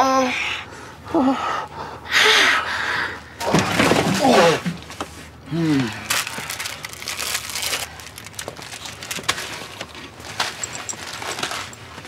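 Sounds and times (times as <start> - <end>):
sharp crunching and cracking: 6.0 - 11.7.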